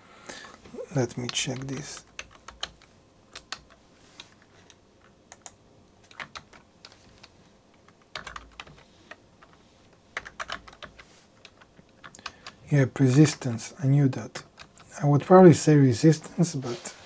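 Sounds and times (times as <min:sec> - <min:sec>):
typing on computer keyboard: 0:01.1 - 0:09.6, 0:10.2 - 0:12.6, 0:14.4 - 0:15.0.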